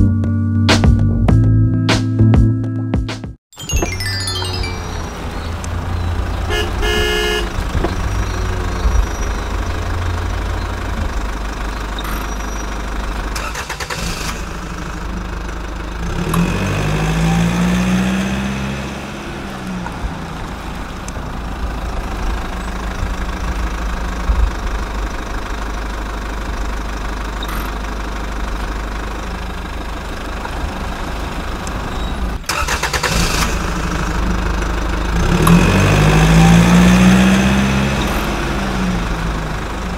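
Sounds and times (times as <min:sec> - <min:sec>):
heavy truck engine: 0:03.7 - 0:39.9
truck horn toot: 0:04.8 - 0:10.1, 0:35.2 - 0:38.3.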